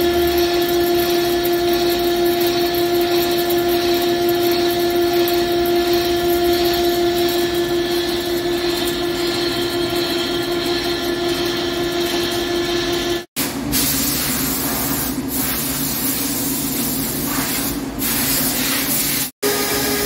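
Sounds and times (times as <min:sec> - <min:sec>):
lathe cutting metal: 0:00.0 - 0:13.3, 0:19.4 - 0:20.0.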